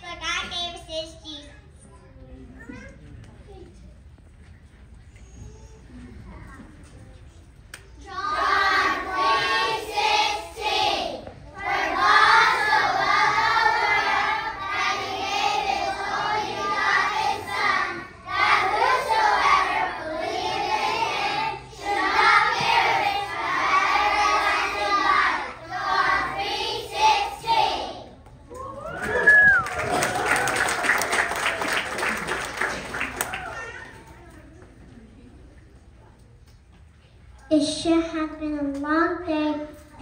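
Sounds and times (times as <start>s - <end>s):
children singing in unison: 8.1s - 27.9s.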